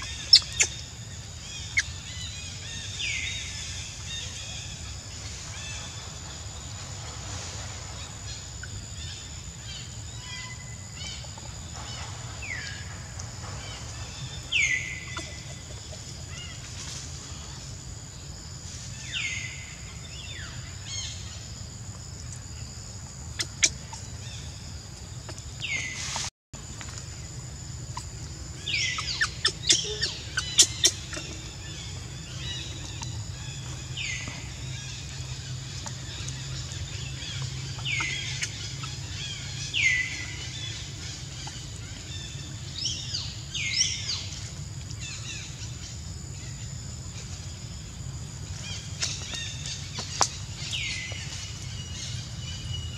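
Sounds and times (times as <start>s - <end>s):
steady low hum: 0.0s - 52.9s
high-pitched animal calls: 28.8s - 31.4s.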